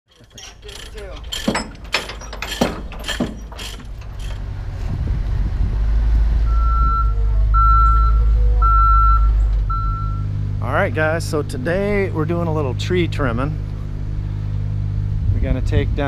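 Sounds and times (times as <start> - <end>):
truck engine running: 0.1 - 16.0
sharp knocks: 0.2 - 4.5
reverse alarm beeping: 6.5 - 10.3.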